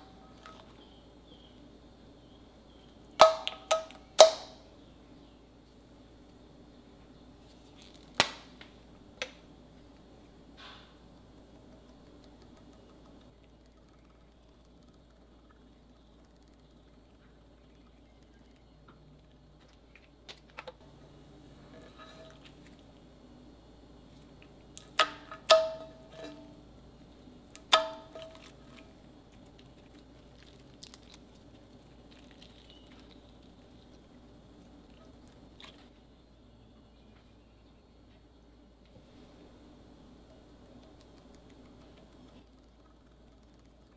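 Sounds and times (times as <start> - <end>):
small clicks: 11.3 - 17.4
slime squishing: 28.2 - 35.9
slime popping: 29.4 - 33.9.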